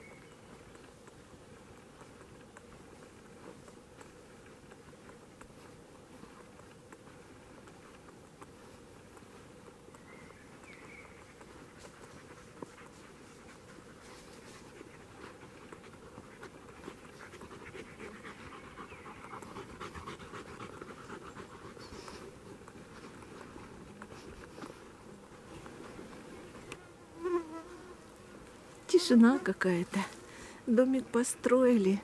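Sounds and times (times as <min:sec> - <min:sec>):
dog panting: 0:10.8 - 0:26.2.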